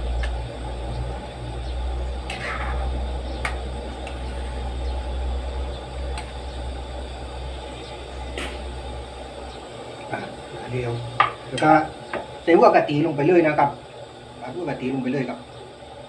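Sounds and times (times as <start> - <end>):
steady low rumble: 0.0 - 12.5
metal spatula scraping a pan: 2.3 - 2.9.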